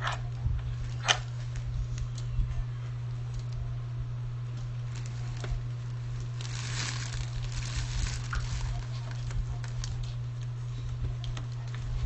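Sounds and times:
plastic wrapping crinkling: 0:04.6 - 0:10.4.

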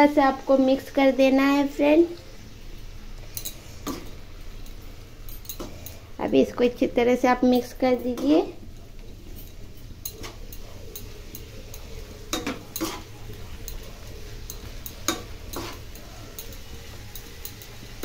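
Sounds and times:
vegetables sizzling in oil: 0:00.0 - 0:18.0
metal spatula scraping a pan: 0:09.4 - 0:18.0.

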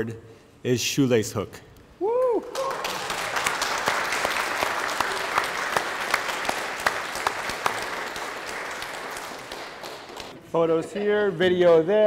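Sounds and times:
audience applauding: 0:02.5 - 0:10.4.

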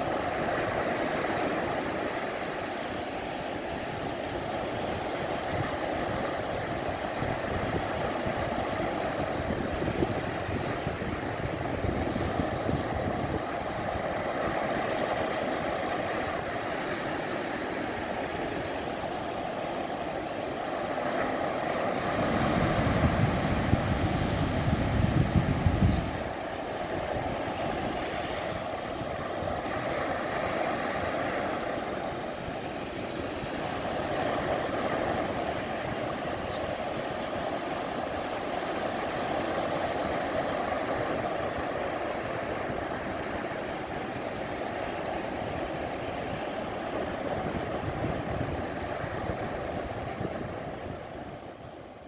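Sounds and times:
surf breaking on beach: 0:00.0 - 0:52.0
wind buffeting microphone: 0:03.2 - 0:52.0.

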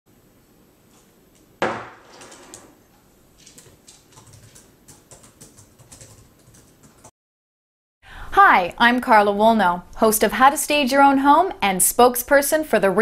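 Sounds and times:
sharp knock: 0:01.6 - 0:02.0
laptop keys typing: 0:03.4 - 0:07.1.

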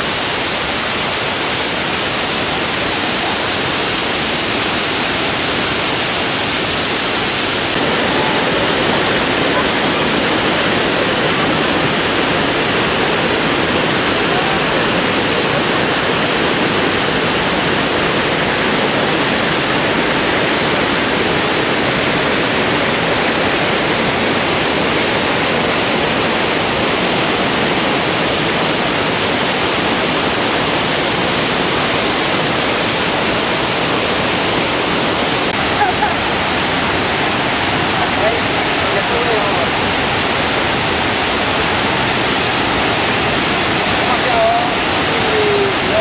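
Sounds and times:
water rushing: 0:00.0 - 0:46.0.

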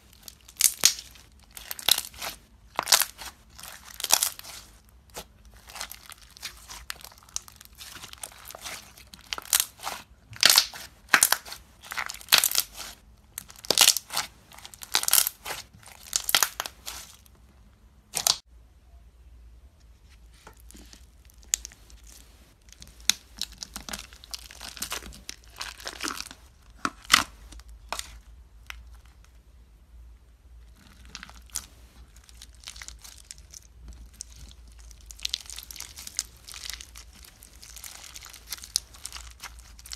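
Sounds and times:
slime crackling and popping: 0:00.0 - 0:17.2, 0:18.1 - 0:18.4, 0:21.2 - 0:29.3, 0:30.7 - 0:39.9
beaded slime crackles and clicks: 0:00.1 - 0:17.2, 0:18.1 - 0:18.4, 0:30.7 - 0:39.9.

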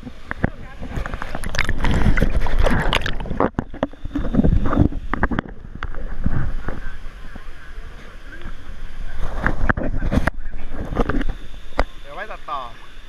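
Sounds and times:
water gurgles and knocks: 0:00.0 - 0:07.1, 0:07.9 - 0:12.0
water sloshing and splashing: 0:00.0 - 0:12.0.

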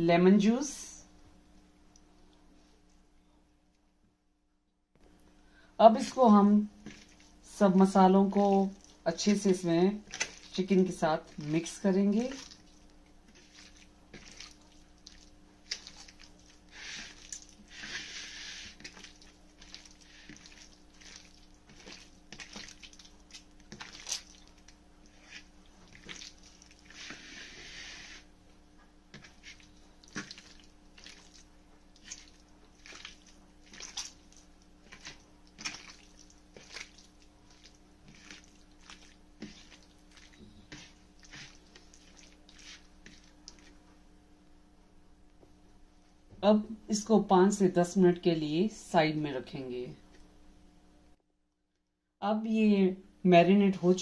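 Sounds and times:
hands squishing wet chicken: 0:06.8 - 0:28.3, 0:29.1 - 0:43.8
wet rubbing: 0:06.8 - 0:28.3, 0:29.1 - 0:43.9.

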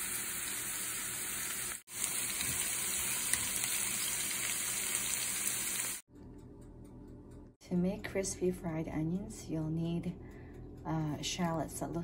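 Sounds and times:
onions sizzling in oil: 0:00.0 - 0:06.0.

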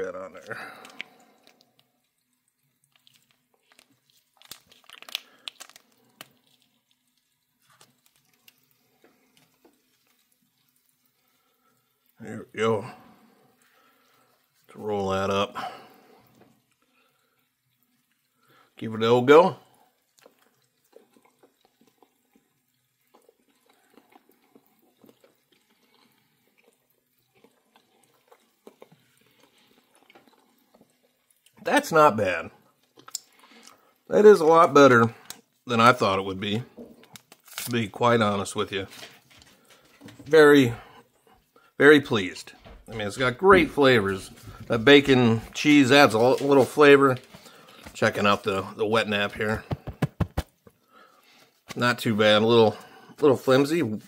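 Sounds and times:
wet chewing: 0:00.3 - 0:12.2, 0:19.6 - 0:31.6, 0:32.5 - 0:34.1, 0:35.1 - 0:35.7, 0:36.6 - 0:37.8
food pouch crinkling: 0:02.7 - 0:08.8, 0:32.8 - 0:33.8, 0:37.0 - 0:38.0
mouth clicks and smacks: 0:32.8 - 0:33.8, 0:49.5 - 0:50.8.

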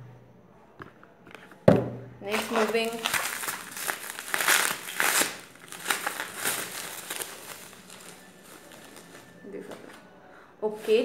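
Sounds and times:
bubble wrap crinkling: 0:02.2 - 0:10.0, 0:10.6 - 0:11.0.

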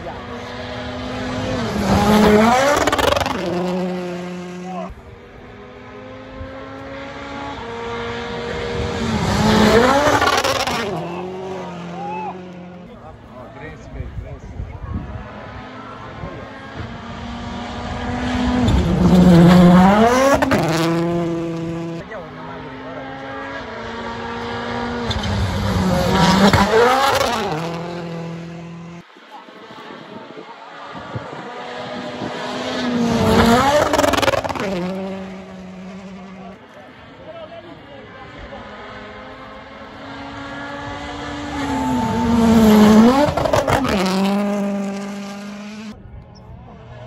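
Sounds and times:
rally car engine passing by: 0:00.0 - 0:47.0.

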